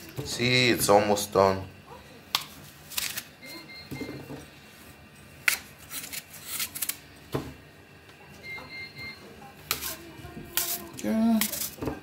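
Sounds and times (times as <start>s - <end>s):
knife slicing crisp apple: 5.4s - 7.0s.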